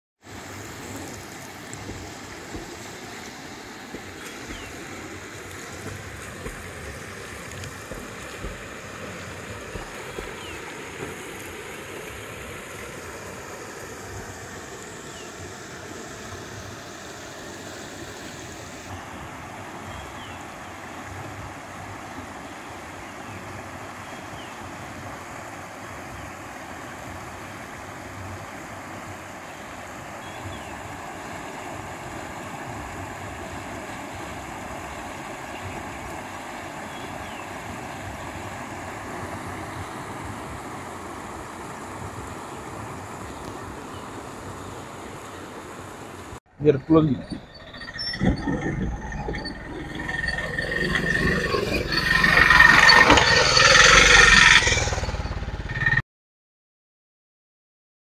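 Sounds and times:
floodwater rushing: 0:00.2 - 0:24.0, 0:24.6 - 0:55.6
wind on microphone: 0:47.1 - 0:54.9.

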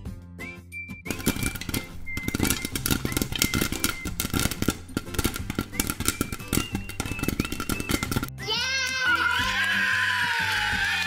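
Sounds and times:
rapid popping clicks: 0:01.1 - 0:08.3.

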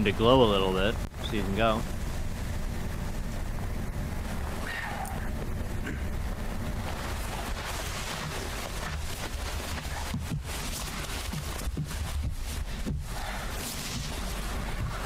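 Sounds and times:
low rumble and hiss: 0:00.0 - 0:15.0.

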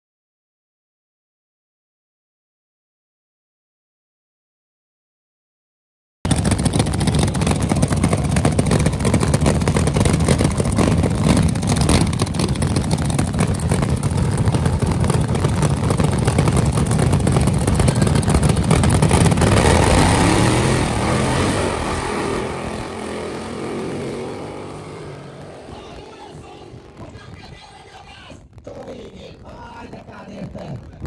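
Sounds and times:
drag car engine firing roughly: 0:06.3 - 0:27.6.

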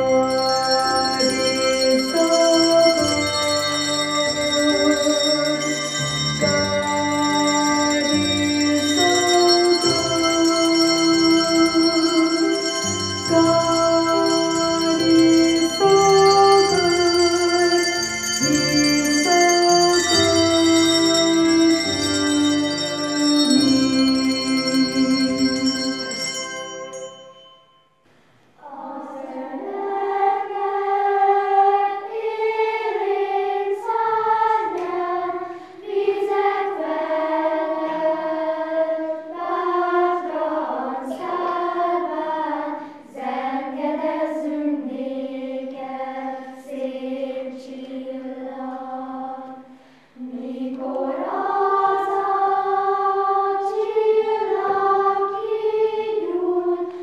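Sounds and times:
children's choir singing: 0:00.0 - 0:27.2, 0:28.6 - 0:57.0
handbells ringing: 0:00.0 - 0:28.0.

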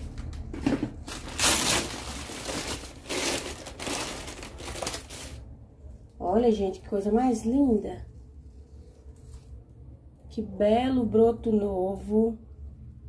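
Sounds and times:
paper wrapping crinkling: 0:00.0 - 0:05.4.

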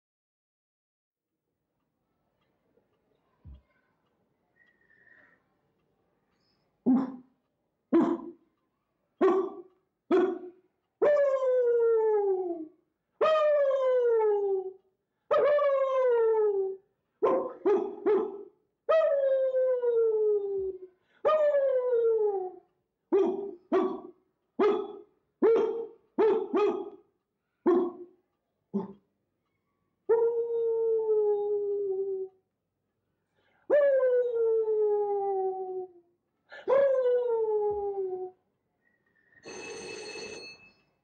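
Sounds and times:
man imitating dog yelps: 0:08.0 - 0:08.3, 0:09.2 - 0:12.6, 0:13.2 - 0:14.4, 0:15.3 - 0:19.8, 0:23.2 - 0:27.0
man howling like a dog: 0:30.2 - 0:32.3, 0:33.7 - 0:36.0, 0:36.7 - 0:38.4.

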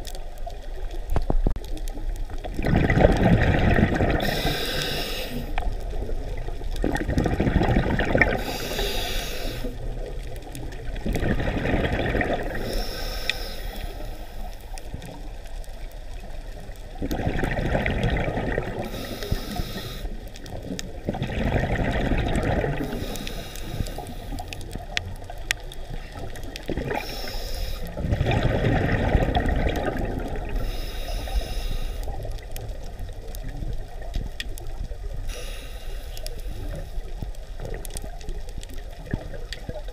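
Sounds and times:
exhaled bubbles gurgling: 0:00.0 - 0:39.9
regulator inhalation hiss: 0:04.2 - 0:05.6, 0:08.4 - 0:09.8, 0:12.6 - 0:14.5, 0:18.9 - 0:20.3, 0:22.8 - 0:24.6, 0:27.0 - 0:28.0, 0:30.6 - 0:32.2, 0:35.3 - 0:37.1.

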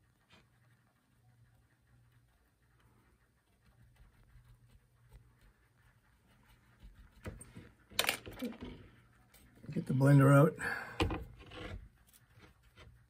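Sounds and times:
brush scratching on canvas: 0:00.0 - 0:07.9, 0:11.2 - 0:13.0
low steady hum: 0:00.0 - 0:13.0.

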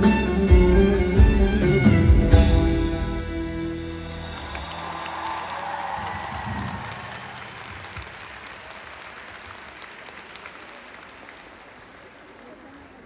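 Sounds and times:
audience applauding: 0:04.2 - 0:13.0.

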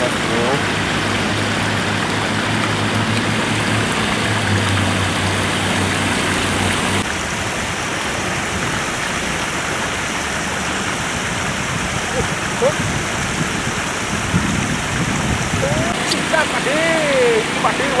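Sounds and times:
water rushing over concrete: 0:00.0 - 0:18.0
low hum: 0:00.6 - 0:07.1.

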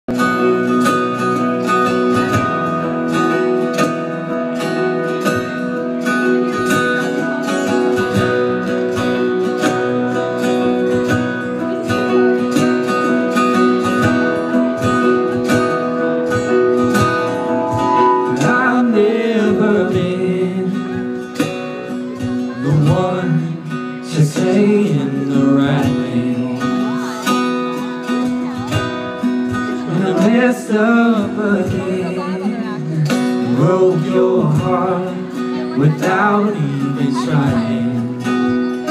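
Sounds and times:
keyboard: 0:00.1 - 0:38.9
strummed acoustic guitar: 0:00.1 - 0:38.9
steady drum beat: 0:16.4 - 0:19.0
person singing: 0:17.3 - 0:21.1.

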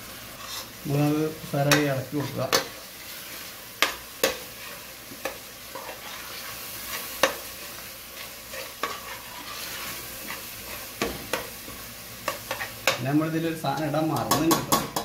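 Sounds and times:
masala sizzling in oil: 0:00.0 - 0:15.0
ladle scraping metal pot: 0:08.2 - 0:10.8.

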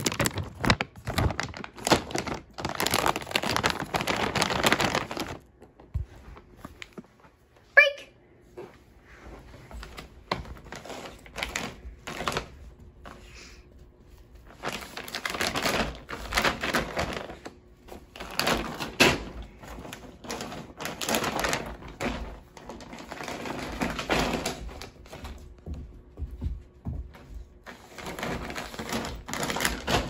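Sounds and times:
plastic pouch crinkling: 0:00.0 - 0:05.9, 0:14.5 - 0:17.5.

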